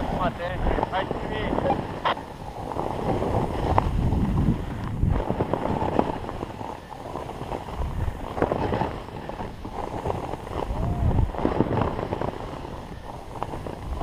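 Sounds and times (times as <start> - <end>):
snowboard scraping over snow: 0.0 - 14.0
wind rushing over microphone: 0.0 - 14.0.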